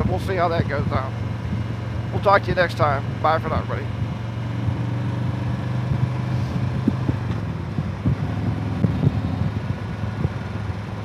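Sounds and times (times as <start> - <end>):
motorcycle engine running: 0.0 - 11.0
wind buffeting microphone: 3.9 - 11.0.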